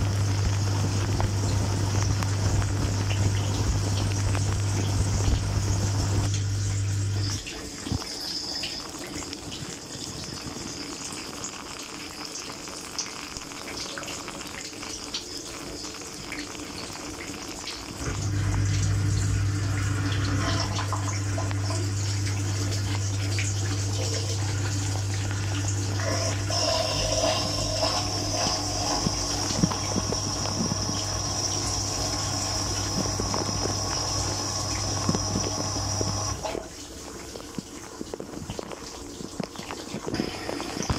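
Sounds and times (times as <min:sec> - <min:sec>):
dishwasher pump motor hum: 0:00.0 - 0:08.8, 0:18.0 - 0:37.7
water spraying and splashing: 0:00.0 - 0:40.9.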